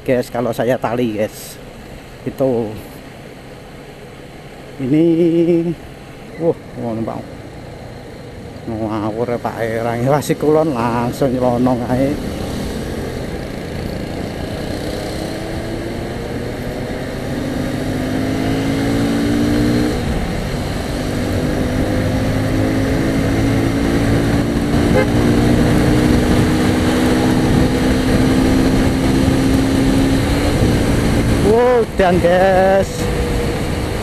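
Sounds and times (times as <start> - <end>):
road and wind noise: 0.0 - 34.0
motorcycle engine accelerating: 7.0 - 34.0.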